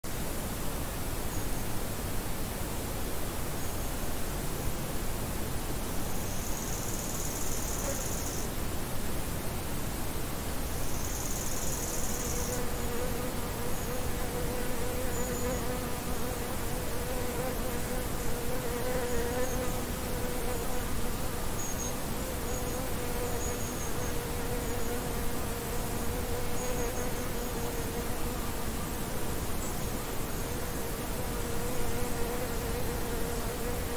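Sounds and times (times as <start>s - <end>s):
steady background hiss: 0.0s - 33.9s
insects chirping: 6.1s - 8.5s, 10.7s - 15.9s, 18.2s - 33.9s
flying insect buzzing: 11.0s - 29.4s, 30.1s - 33.9s.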